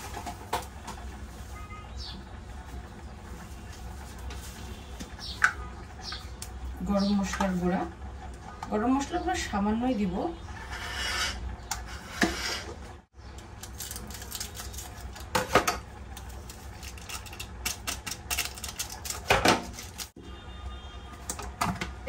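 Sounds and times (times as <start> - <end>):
packet crinkling: 13.5 - 15.3, 16.1 - 20.1.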